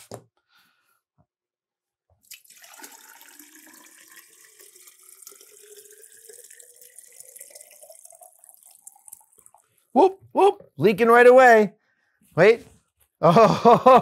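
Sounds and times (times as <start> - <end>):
water pouring into ceramic vase: 2.2 - 9.9.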